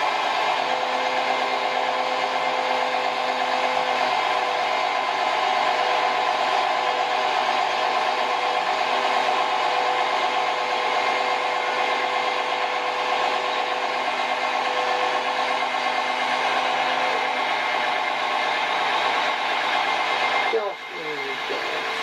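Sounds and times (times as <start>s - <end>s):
diesel engine under load: 0.0s - 22.0s
steady whine: 0.0s - 22.0s.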